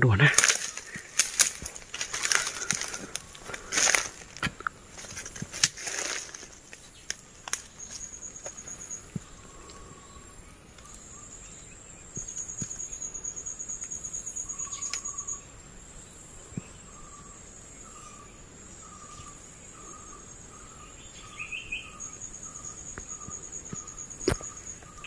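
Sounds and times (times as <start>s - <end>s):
insects high pulsing trill: 0.0s - 25.0s
lower repeating chirp: 16.9s - 25.0s.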